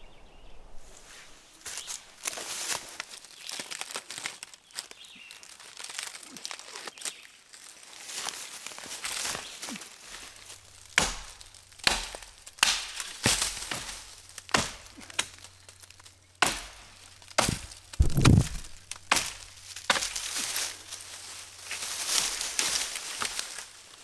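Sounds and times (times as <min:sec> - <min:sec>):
dry wood cracking: 0:01.6 - 0:24.0
heavy thud: 0:17.4 - 0:19.2.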